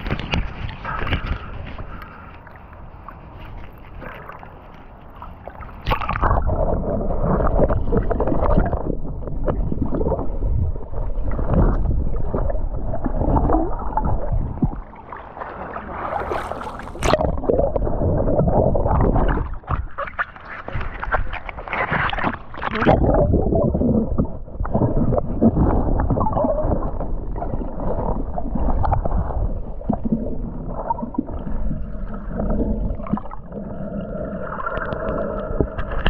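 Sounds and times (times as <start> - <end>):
muffled underwater rushing and gurgling: 0.0 - 36.0
bubbles: 5.5 - 36.0
sharp splash: 15.4 - 17.4.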